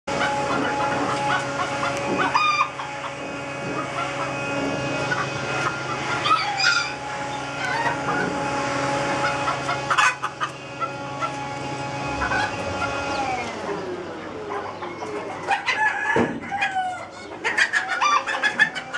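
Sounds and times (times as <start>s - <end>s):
chickens clucking: 0.1s - 18.9s
steady tonal hum: 0.1s - 18.9s
rooster crowing: 0.3s - 3.1s, 6.0s - 8.6s, 15.5s - 17.3s.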